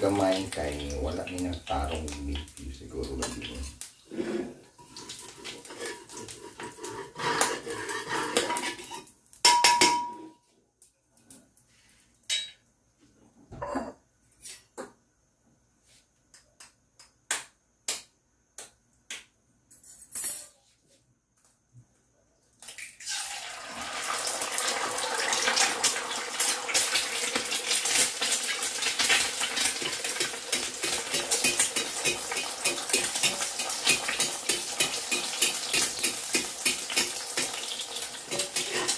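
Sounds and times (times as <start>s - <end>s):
egg sizzling in a wok: 0.0s - 10.0s, 22.6s - 38.9s
metal spatula scraping a wok: 4.1s - 9.1s, 38.2s - 38.9s.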